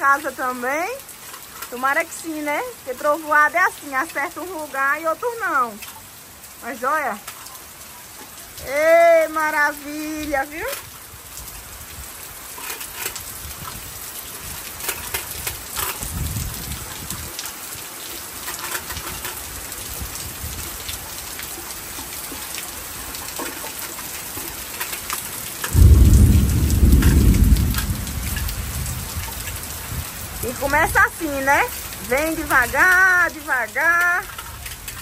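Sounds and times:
light rain falling: 0.0s - 35.0s
thunder rumble: 25.7s - 32.8s.

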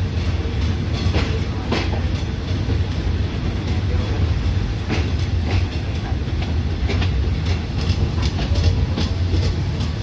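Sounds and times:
train low rumble: 0.0s - 10.0s
train wheels clicking over rail joints: 0.0s - 10.0s.

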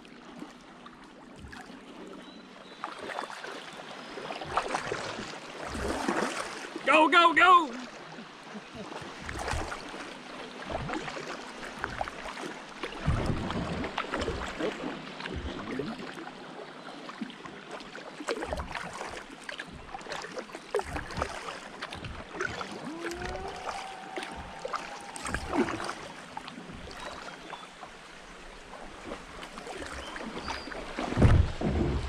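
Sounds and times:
paddle strokes in water: 0.0s - 32.0s
water dripping off paddle: 17.9s - 27.8s.

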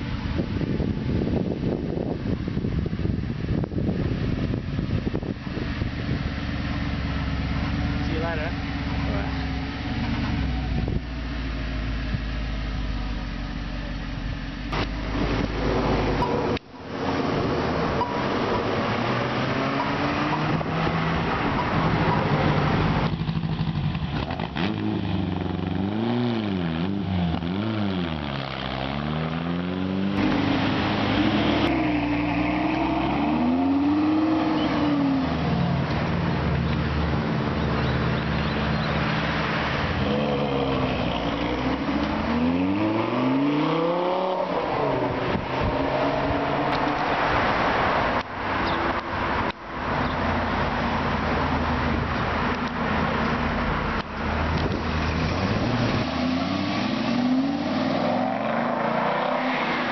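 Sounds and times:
supercar engines revving: 0.3s - 59.9s.

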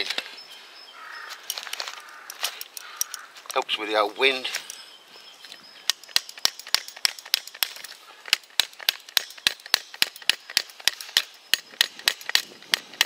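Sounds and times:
hammering metal tent peg: 5.9s - 13.0s.

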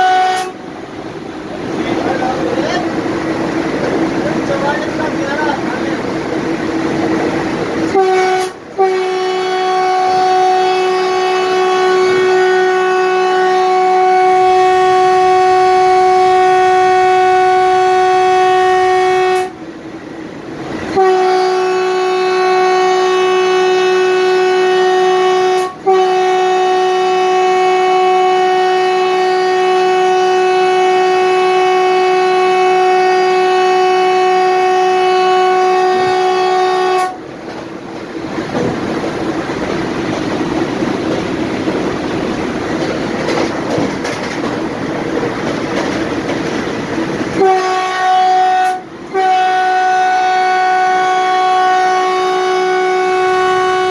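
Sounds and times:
train horn blasts: 0.0s - 0.8s, 7.8s - 19.6s, 20.8s - 37.3s, 47.2s - 53.9s.

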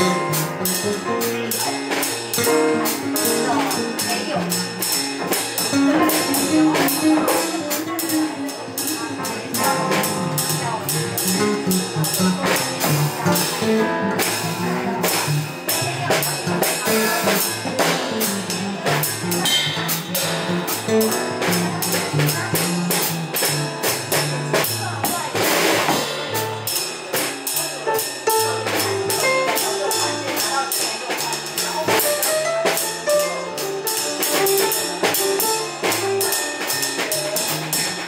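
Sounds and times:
drum kit cymbal pattern: 0.0s - 38.0s
electric bass line: 9.3s - 25.2s.

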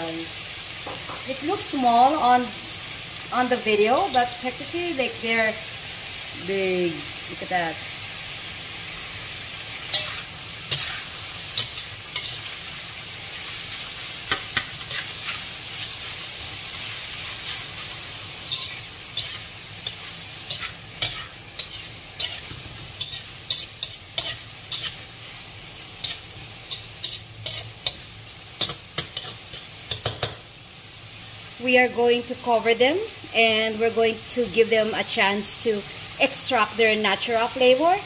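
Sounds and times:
food sizzling in a pan: 0.0s - 38.0s
spatula scraping a pan: 9.7s - 25.4s, 26.0s - 30.3s.

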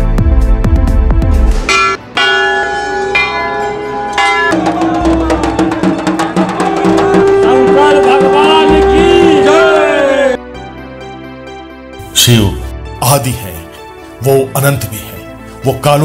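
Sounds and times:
bells ringing: 1.7s - 5.7s
drum beaten fast: 4.2s - 9.6s.

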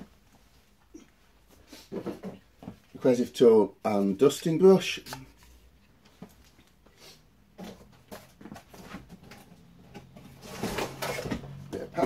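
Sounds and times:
cardboard scraping and rustling: 7.6s - 11.8s.

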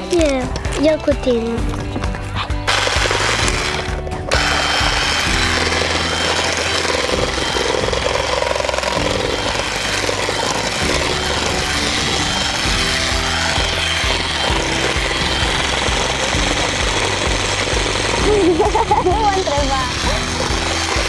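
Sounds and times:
beaters churning in metal bowl: 1.7s - 21.0s
electric hand mixer running: 2.5s - 21.0s.

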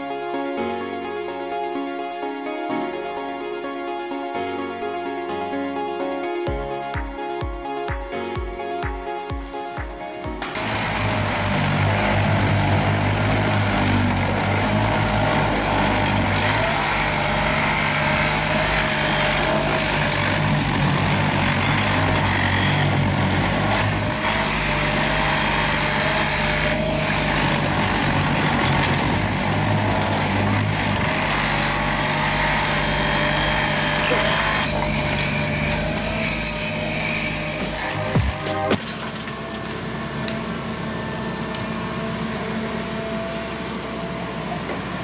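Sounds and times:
excavator engine humming: 10.2s - 45.0s
tamping tines vibrating in ballast: 10.6s - 38.9s.

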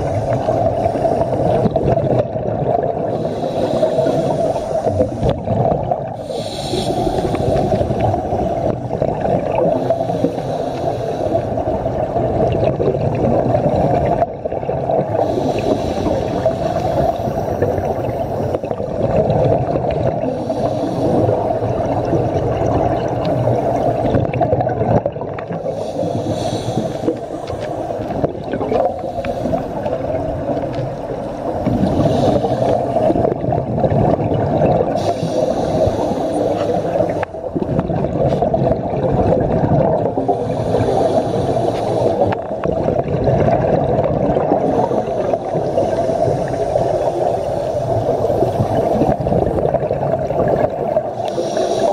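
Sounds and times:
muffled underwater rumble: 0.0s - 51.9s
regulator exhalation bubbling: 12.4s - 51.9s.

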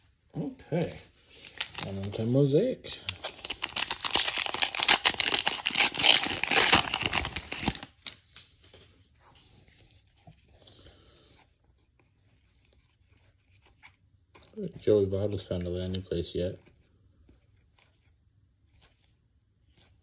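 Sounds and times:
cards rustling: 0.8s - 8.6s
foil wrapper tearing and crinkling: 1.4s - 2.2s, 3.1s - 8.2s.

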